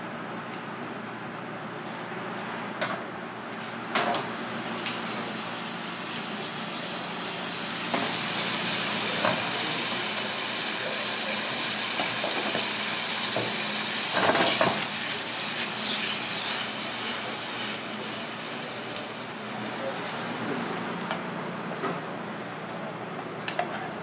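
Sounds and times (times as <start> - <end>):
food sizzling in hot oil: 4.4 - 19.4.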